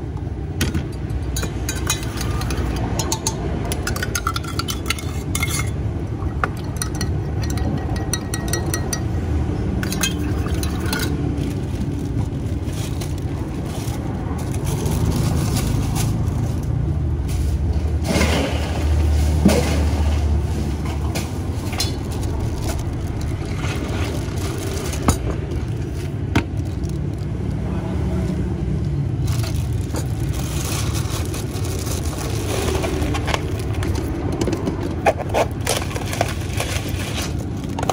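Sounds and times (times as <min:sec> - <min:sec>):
road traffic rumble: 0:00.0 - 0:37.9
spoon clinking against glass jug: 0:01.0 - 0:09.2, 0:09.8 - 0:11.2.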